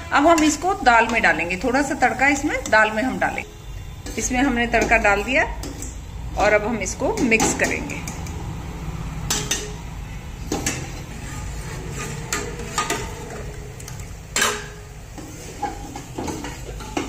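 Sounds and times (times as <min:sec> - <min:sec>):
ladle scraping metal pot: 0:09.2 - 0:17.0.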